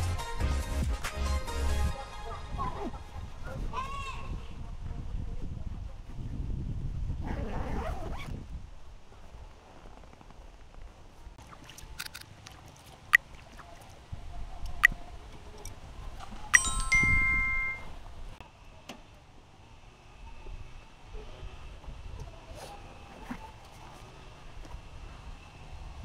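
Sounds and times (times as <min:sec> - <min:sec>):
metal tent pegs clinking: 0:16.5 - 0:17.9.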